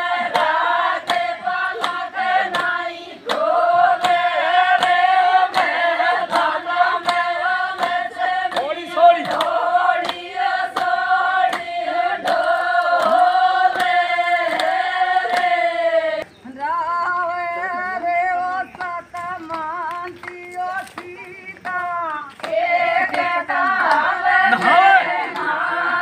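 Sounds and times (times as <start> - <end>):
group of women singing: 0.0 - 26.0
woman singing alone: 16.4 - 24.6.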